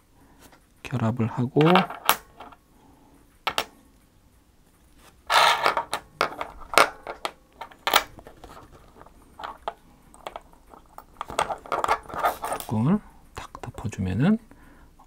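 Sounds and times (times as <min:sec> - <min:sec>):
plastic and metal parts clicking: 0:05.6 - 0:12.7.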